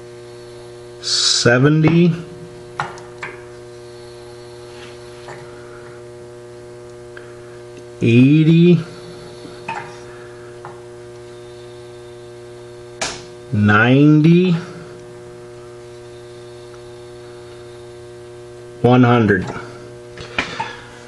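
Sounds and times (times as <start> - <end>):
electrical mains hum: 0.0 - 21.0.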